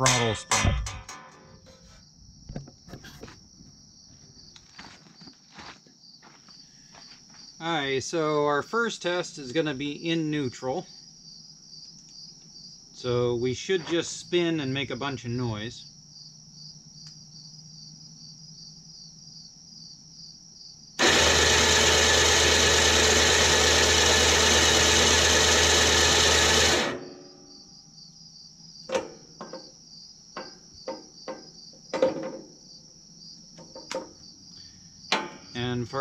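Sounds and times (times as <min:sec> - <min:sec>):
clicks and knocks: 0:00.0 - 0:01.9, 0:28.9 - 0:29.6
electric motor running: 0:21.0 - 0:27.0.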